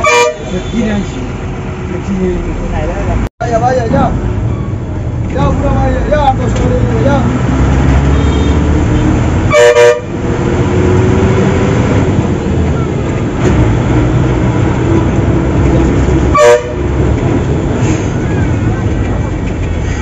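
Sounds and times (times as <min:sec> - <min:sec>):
vehicle horn honking: 0:00.0 - 0:01.0, 0:08.0 - 0:08.7, 0:09.5 - 0:10.2, 0:16.3 - 0:16.9
bus engine droning: 0:00.0 - 0:20.0.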